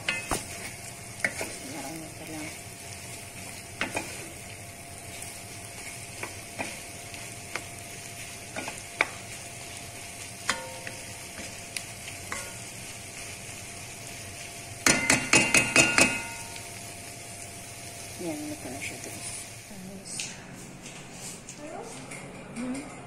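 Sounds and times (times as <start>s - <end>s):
food sizzling in a pan: 0.0s - 20.2s
wooden spoon knocking on pan: 14.8s - 16.5s.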